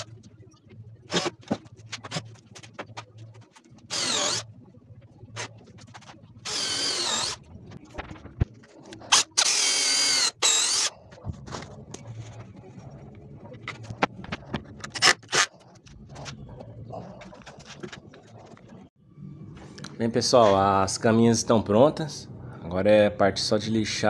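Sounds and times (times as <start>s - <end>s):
electric drill whining: 3.9s - 4.4s, 6.4s - 7.4s, 9.1s - 10.9s.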